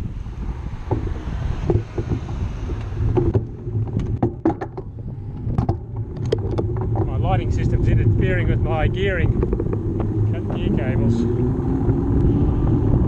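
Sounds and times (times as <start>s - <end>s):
wind rumbling on microphone: 0.0s - 13.0s
bike clicks and rattles: 0.8s - 10.7s.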